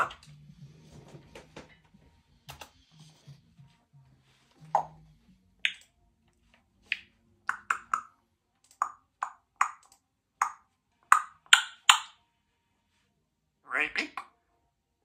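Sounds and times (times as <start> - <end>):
parrot clicks and pops: 6.9 - 8.1, 8.8 - 12.1.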